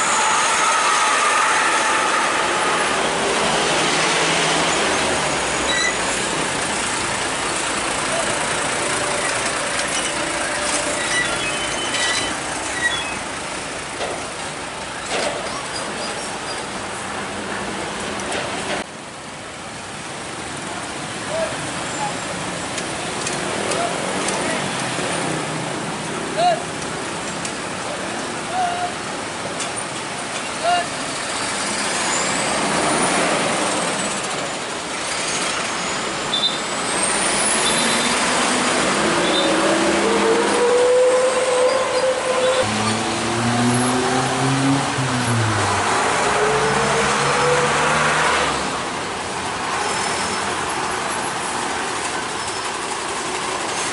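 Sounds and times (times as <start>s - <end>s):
high wheel squeals: 0.0s - 3.8s, 4.5s - 6.4s, 7.4s - 13.6s, 15.0s - 16.8s, 30.5s - 44.3s, 49.7s - 53.9s
train wheels rumbling on rail: 0.0s - 18.9s, 48.4s - 53.9s
trucks and cars passing: 0.0s - 53.9s.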